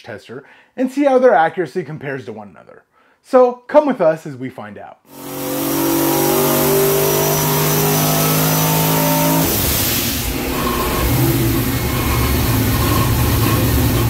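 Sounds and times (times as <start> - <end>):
car engine: 5.1 - 14.0.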